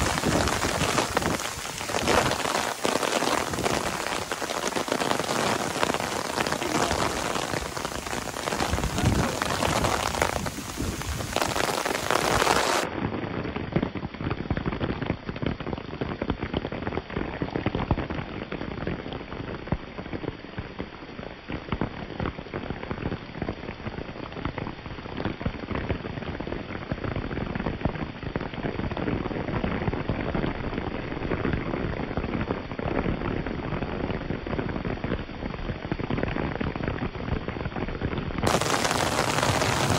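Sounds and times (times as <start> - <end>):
raindrops ticking: 0.0 - 12.9, 38.5 - 39.9
steady rain falling: 0.0 - 39.9.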